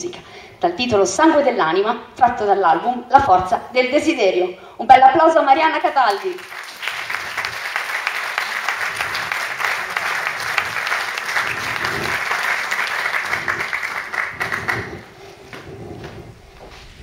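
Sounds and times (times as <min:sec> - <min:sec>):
audience applauding: 0:06.2 - 0:15.1.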